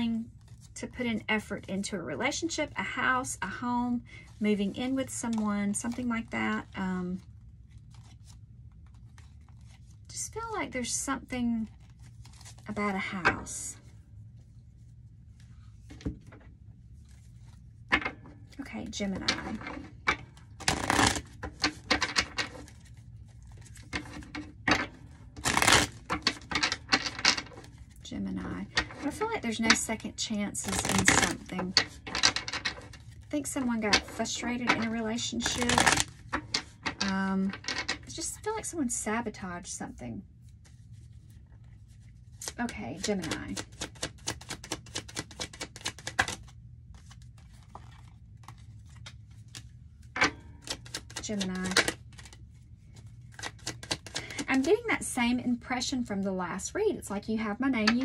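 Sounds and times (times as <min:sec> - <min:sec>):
cards shuffling and snapping: 0:11.8 - 0:12.6, 0:19.2 - 0:28.0, 0:30.6 - 0:38.0, 0:42.0 - 0:54.7.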